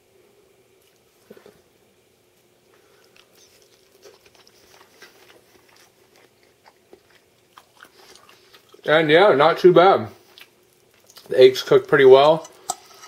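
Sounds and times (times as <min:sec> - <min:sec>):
faint chewing: 0:00.8 - 0:01.7, 0:02.3 - 0:08.9, 0:10.1 - 0:13.0.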